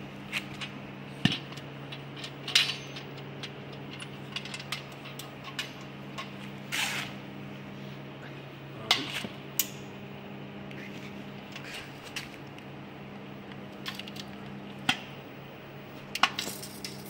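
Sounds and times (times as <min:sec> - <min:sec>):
steady low hum: 0:00.0 - 0:17.0
metal chips clinking in bucket: 0:16.2 - 0:17.0.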